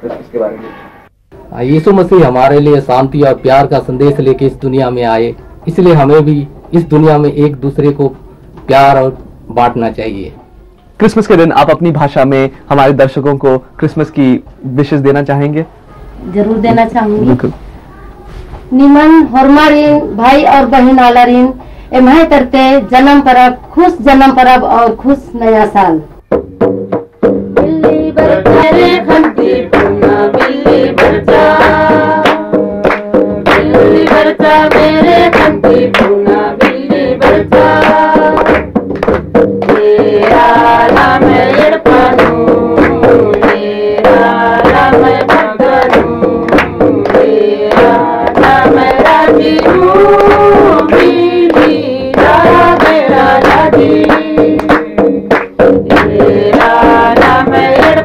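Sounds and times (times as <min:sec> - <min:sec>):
hand-played barrel drum: 0:26.2 - 0:58.0
group singing: 0:27.5 - 0:58.0.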